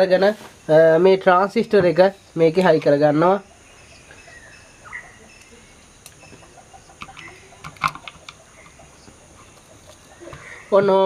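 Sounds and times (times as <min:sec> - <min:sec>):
faint animal calls: 0:03.2 - 0:11.0.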